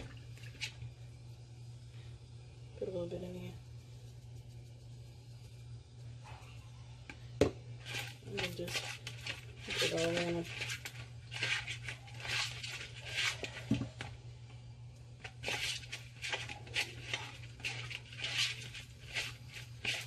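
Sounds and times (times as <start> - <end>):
low hum: 0.0 - 11.3.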